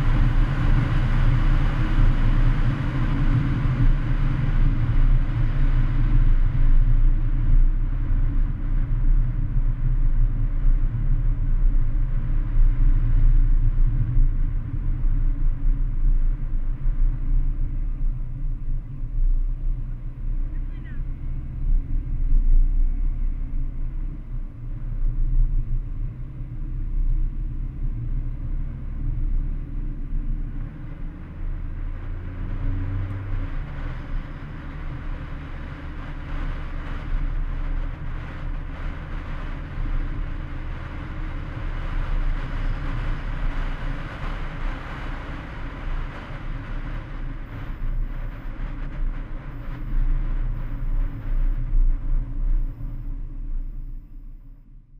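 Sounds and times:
car engine: 0:00.0 - 0:54.8
wind noise: 0:00.0 - 0:54.8
low road rumble: 0:00.0 - 0:54.9.

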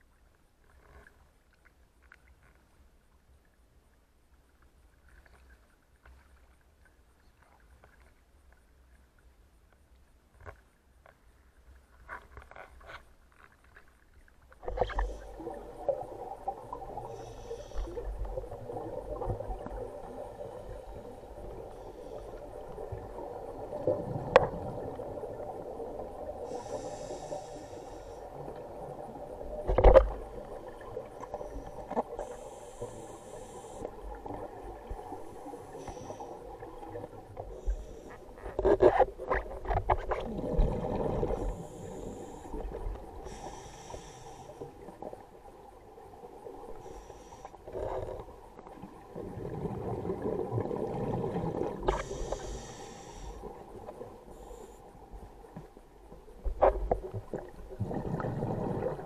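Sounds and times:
hissing regulator inhalations: 0:17.0 - 0:18.3, 0:26.4 - 0:28.5, 0:31.3 - 0:34.0, 0:41.3 - 0:44.8, 0:46.8 - 0:48.0, 0:51.9 - 0:53.5
exhaled air bubbling: 0:40.1 - 0:44.4, 0:47.7 - 0:53.8, 0:56.6 - 0:59.0.

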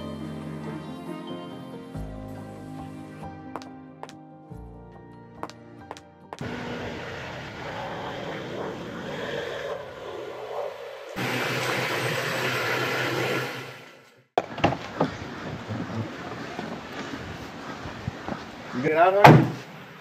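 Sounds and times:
low hum: 0:06.4 - 0:14.3
steady mechanical noise: 0:06.4 - 0:20.0
sharp knocks: 0:19.2 - 0:19.7.

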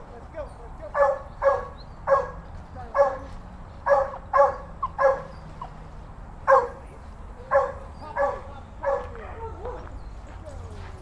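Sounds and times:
dog barking: 0:00.9 - 0:05.7, 0:06.4 - 0:06.9, 0:07.5 - 0:09.9.

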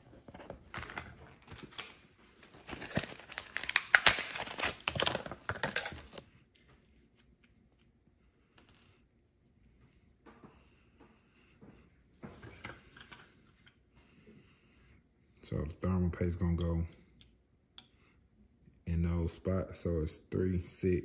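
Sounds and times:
blister pack tearing and crinkling: 0:02.6 - 0:06.2.

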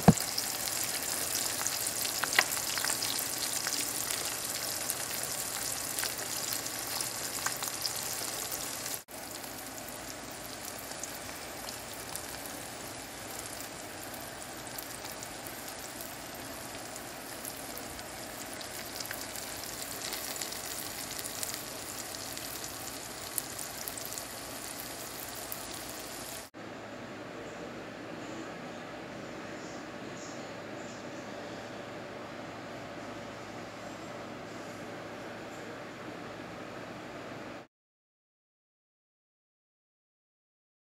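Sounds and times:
eggs sizzling in a pan: 0:00.0 - 0:26.5.

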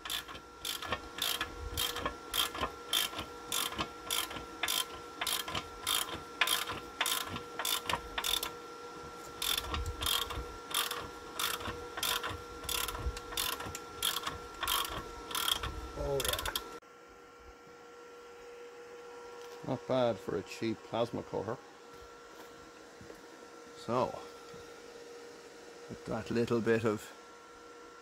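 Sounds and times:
sharp mechanical clicking: 0:00.0 - 0:08.5, 0:09.4 - 0:16.7.

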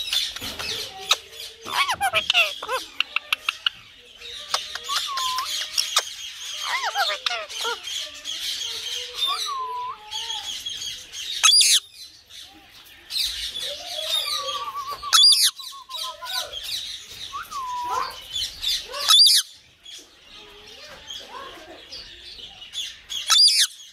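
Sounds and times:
parakeet chattering and chirping: 0:00.0 - 0:19.6, 0:20.5 - 0:23.9
parakeet screeching: 0:01.0 - 0:03.8, 0:04.5 - 0:10.7, 0:13.8 - 0:16.6, 0:17.4 - 0:19.5, 0:23.3 - 0:23.7.

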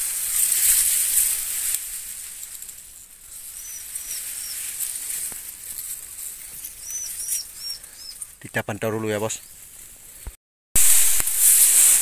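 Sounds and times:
rustling through foliage: 0:00.0 - 0:12.0
bird chirping: 0:03.4 - 0:04.7, 0:06.1 - 0:09.6.

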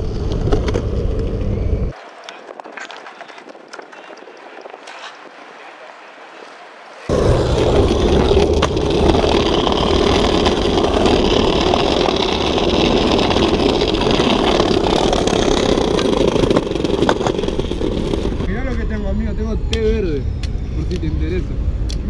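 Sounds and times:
skateboard wheels rolling on stone: 0:00.0 - 0:05.7, 0:07.0 - 0:18.6.

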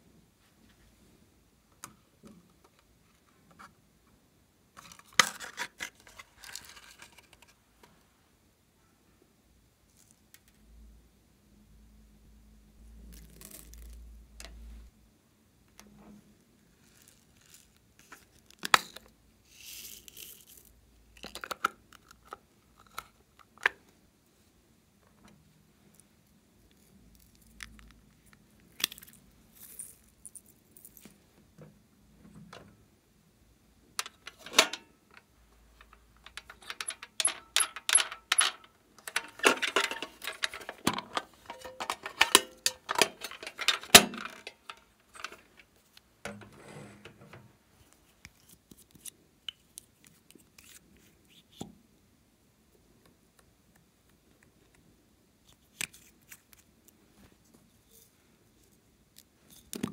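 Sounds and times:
plastic objects clicking and clacking: 0:04.8 - 0:07.9, 0:34.0 - 0:47.5.

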